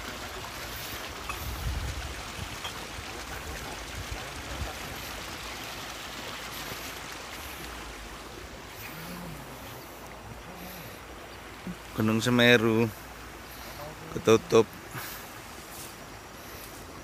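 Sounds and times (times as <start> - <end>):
stream running over rocks: 0.0 - 17.0
wind buffets on microphone: 1.3 - 5.0.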